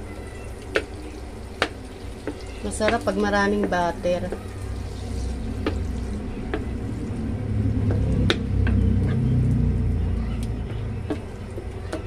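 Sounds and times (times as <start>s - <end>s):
butter sizzling in a pan: 0.0s - 7.2s
low rumble: 3.8s - 11.8s.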